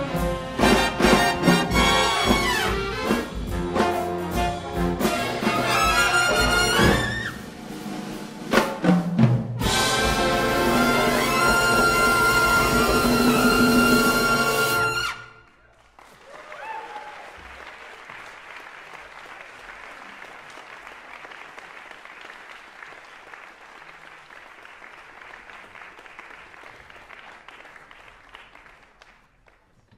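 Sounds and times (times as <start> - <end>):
audience applauding: 15.4 - 29.9
person whooping: 16.3 - 17.4.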